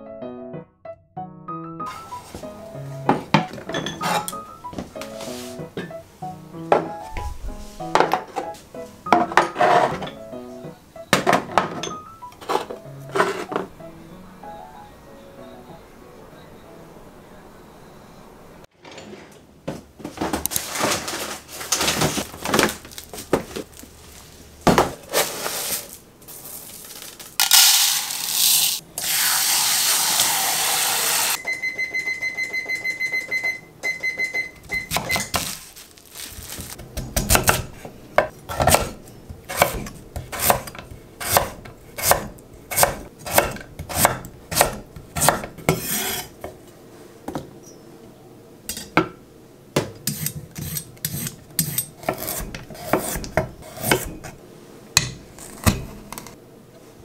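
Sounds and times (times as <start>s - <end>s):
containers and drawer clattering: 3.1s - 6.0s, 6.7s - 10.2s, 11.2s - 13.8s, 18.7s - 23.8s
knife chopping on wooden board: 36.8s - 46.6s, 49.8s - 54.4s.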